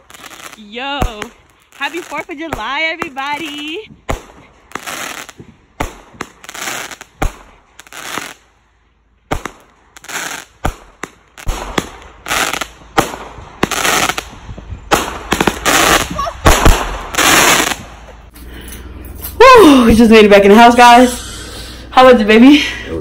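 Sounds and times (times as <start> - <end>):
fireworks bangs: 0.0 - 8.4, 9.3 - 18.3
fireworks crackling hiss: 0.0 - 8.6, 9.3 - 18.3.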